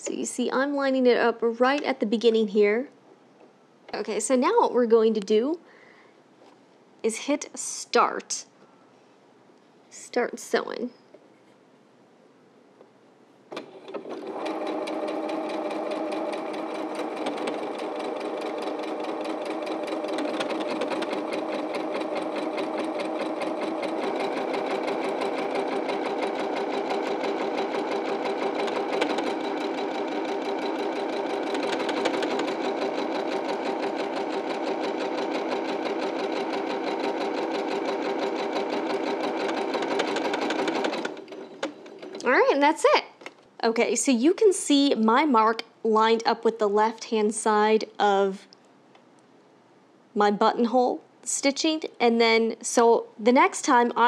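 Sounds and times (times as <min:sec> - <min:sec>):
sewing machine stitching: 0:13.5 - 0:42.6.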